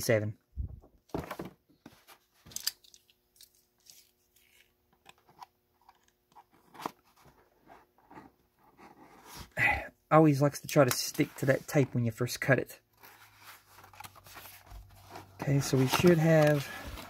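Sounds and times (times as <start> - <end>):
cardboard rustling: 13.0 - 17.0.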